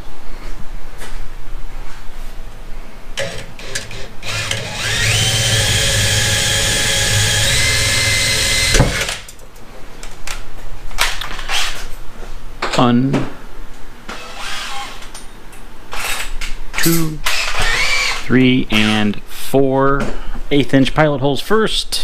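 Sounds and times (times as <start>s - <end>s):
cordless drill whining: 3.2s - 9.2s, 17.3s - 18.2s.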